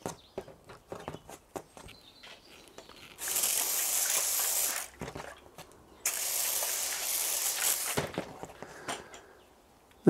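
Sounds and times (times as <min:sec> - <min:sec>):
spray bottle hissing: 0:03.2 - 0:04.9, 0:06.1 - 0:08.0.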